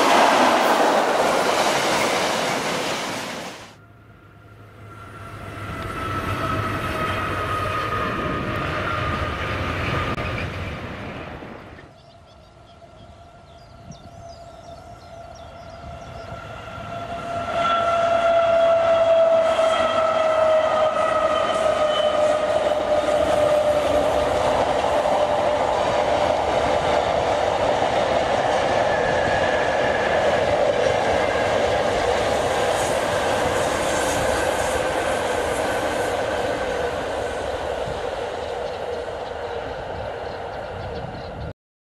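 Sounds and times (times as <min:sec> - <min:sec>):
locomotive tone sliding down: 0:00.0 - 0:11.9, 0:14.8 - 0:41.0
train wagons rolling: 0:17.9 - 0:40.9.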